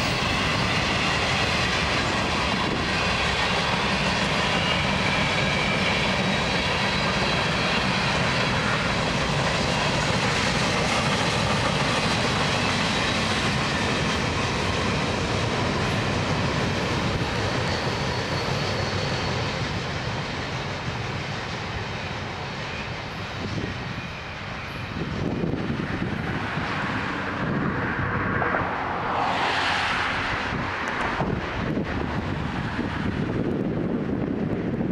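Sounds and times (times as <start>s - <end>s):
train wheels rolling on rails: 0.0s - 27.8s.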